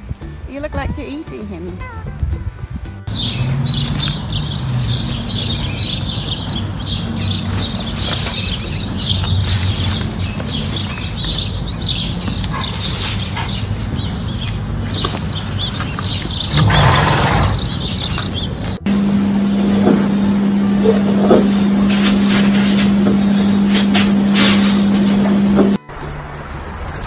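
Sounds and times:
small birds chirping: 3.1 - 18.8
steady low hum: 13.2 - 25.8.

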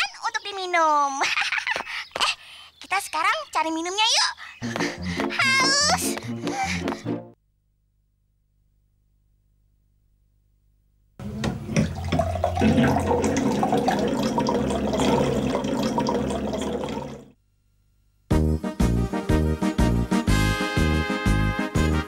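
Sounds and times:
water pouring into glass: 11.2 - 17.3.

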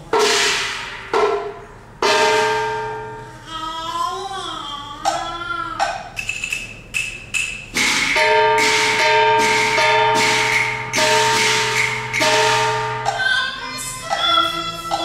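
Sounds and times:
sharp percussion strike: 0.0 - 3.4, 5.8 - 13.6
held high note: 8.2 - 13.7.

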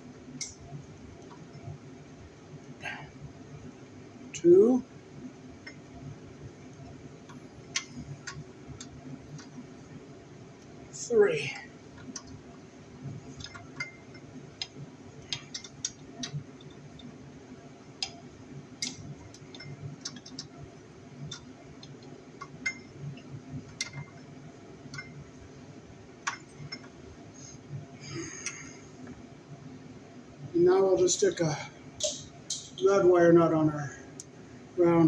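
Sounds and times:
wires being handled: 10.6 - 17.2.

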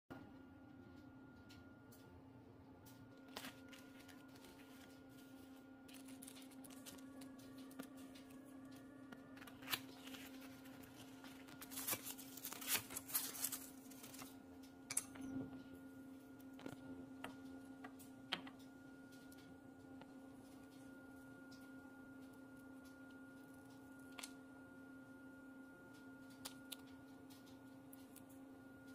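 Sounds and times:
faint steady hum: 0.1 - 28.9
paper rustling: 3.2 - 8.4, 9.4 - 14.3.

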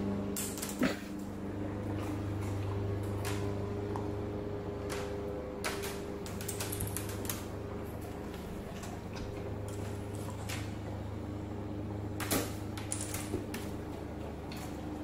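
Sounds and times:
steady low hum: 0.0 - 15.0
dog claws clicking on tile: 0.4 - 0.9, 4.8 - 10.7.

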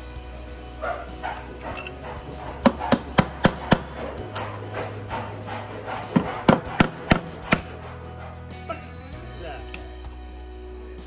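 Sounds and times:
hammer tapping wood: 2.6 - 4.0.

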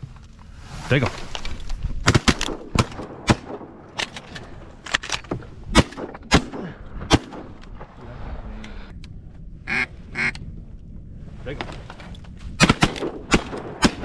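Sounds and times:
shotguns firing: 2.0 - 4.2, 5.7 - 7.6, 12.6 - 14.0
duck quacks: 9.7 - 10.4.

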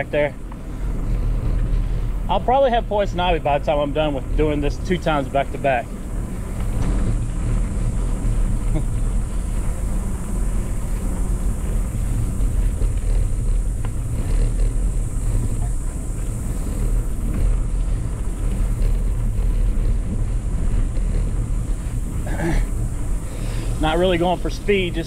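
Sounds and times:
bike tyres rumbling on dirt: 0.0 - 25.0
wind rushing past microphone: 0.0 - 25.0.

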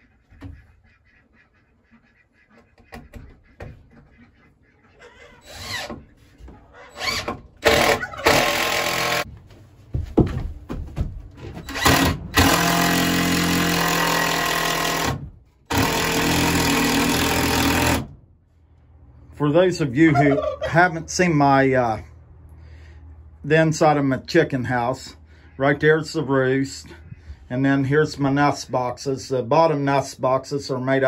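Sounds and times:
cordless drill motor: 11.7 - 18.0.

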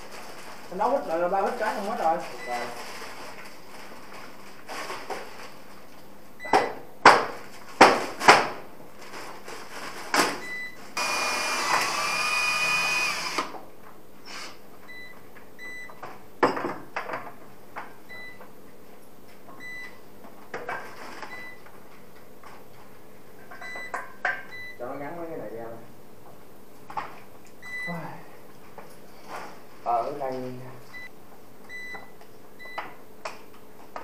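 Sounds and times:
power drill whirring: 11.0 - 13.5.

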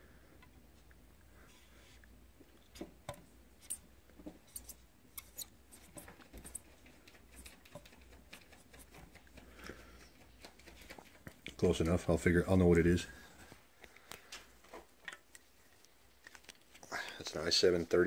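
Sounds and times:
marker tapping and squeaking: 2.7 - 11.4.

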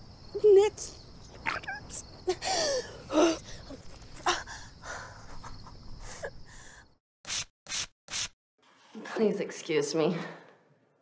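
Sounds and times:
crickets chirping: 0.0 - 7.0.

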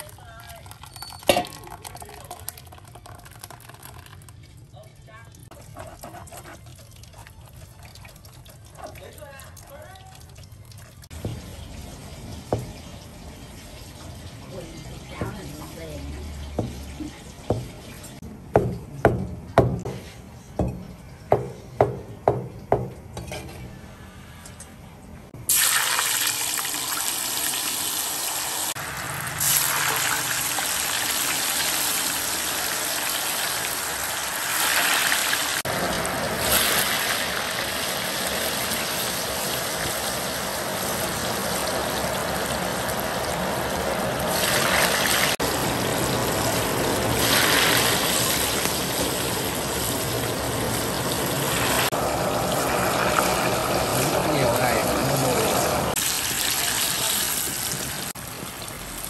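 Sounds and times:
water running: 29.4 - 58.8.

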